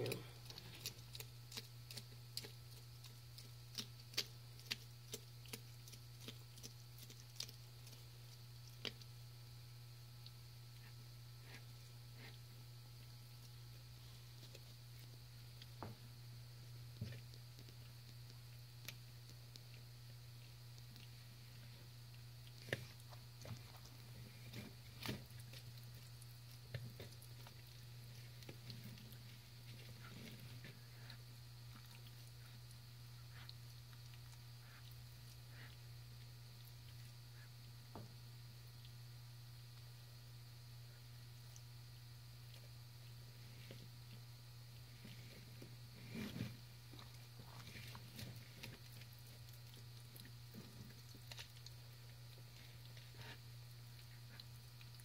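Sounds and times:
jaws clicking while chewing: 0:00.0 - 0:09.1, 0:46.9 - 0:55.0
steady low hum: 0:00.0 - 0:55.0.

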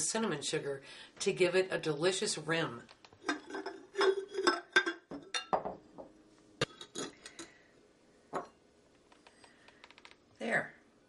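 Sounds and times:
ceramic mug clinking against glass: 0:03.3 - 0:05.8.

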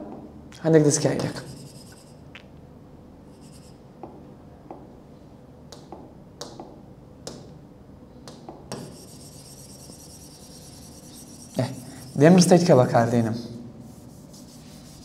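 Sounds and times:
rubbing to wipe a screen: 0:13.8 - 0:15.0.

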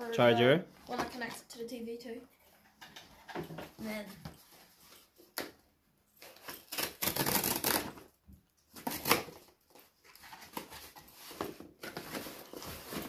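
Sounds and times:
cardboard tearing and rustling: 0:06.2 - 0:13.0.

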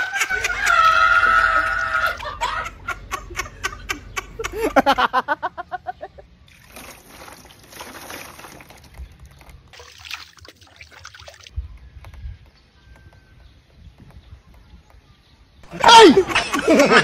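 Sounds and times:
rhythmic laugh: 0:00.0 - 0:06.3, 0:15.7 - 0:17.0
water sloshing and splashing: 0:06.5 - 0:11.6.

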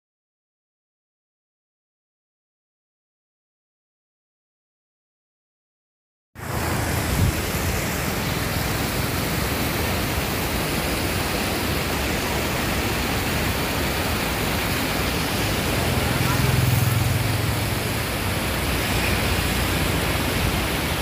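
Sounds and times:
river rushing over stones: 0:06.4 - 0:21.0.

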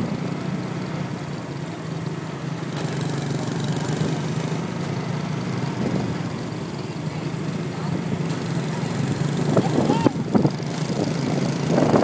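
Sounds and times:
motorbike engines running: 0:00.0 - 0:12.0
wind rushing over microphone: 0:09.4 - 0:12.0.

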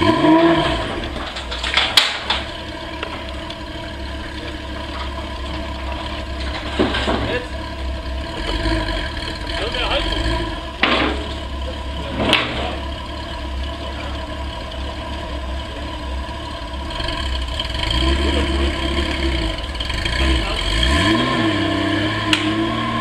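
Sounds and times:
motorcycle engine idling: 0:00.0 - 0:20.6
sharp knocks: 0:10.8 - 0:11.4.

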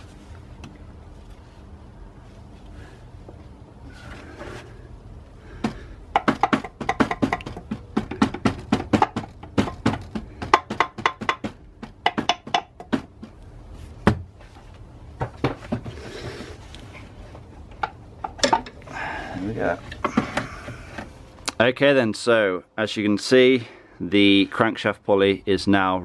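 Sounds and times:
knocking on a metal pulley: 0:05.6 - 0:13.2.

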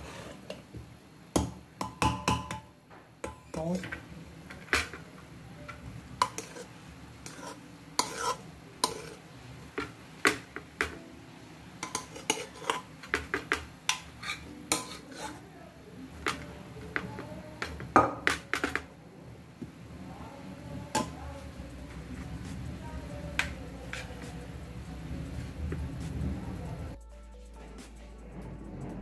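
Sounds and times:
spoon clinking against pot and plate: 0:01.4 - 0:05.0, 0:05.6 - 0:09.2, 0:11.8 - 0:15.4.

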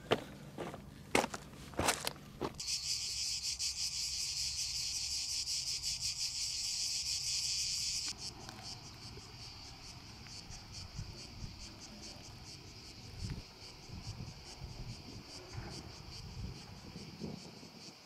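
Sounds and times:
cicadas buzzing: 0:00.0 - 0:18.0.

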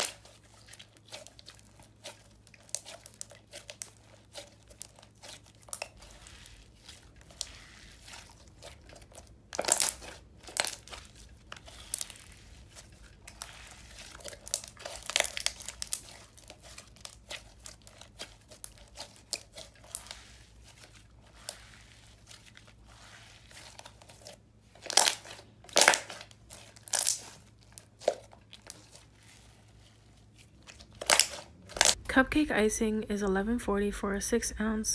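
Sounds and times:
slime squelching: 0:00.0 - 0:32.2.

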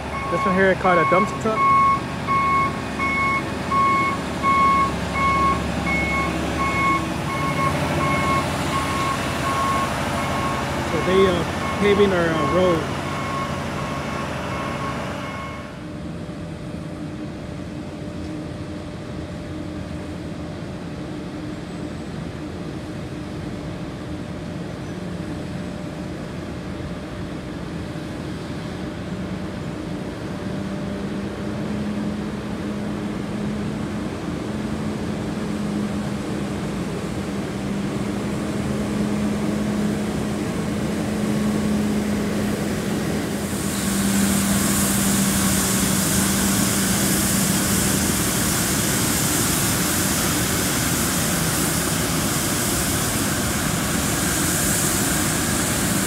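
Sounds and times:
reversing beeper: 0:00.0 - 0:15.8
heavy diesel engines droning: 0:00.0 - 0:56.0.

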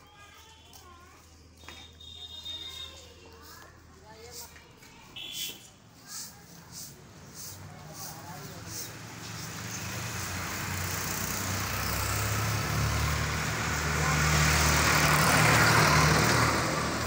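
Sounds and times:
vehicle engine passing by: 0:06.4 - 0:17.0.

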